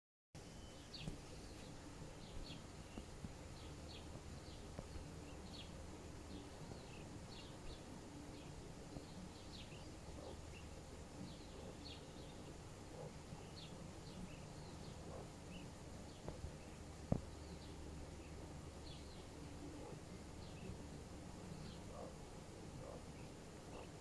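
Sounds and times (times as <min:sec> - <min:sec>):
low background hum: 0:00.4 - 0:24.0
ducklings peeping: 0:09.1 - 0:20.8.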